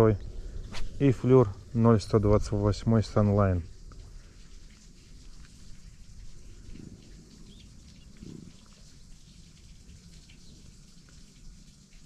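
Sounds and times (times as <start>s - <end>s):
low wind rumble: 0.0s - 4.6s.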